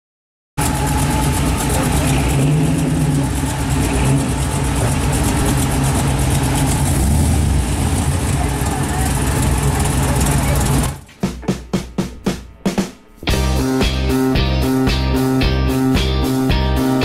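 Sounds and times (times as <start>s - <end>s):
car exhaust at low revs: 0.6s - 11.1s.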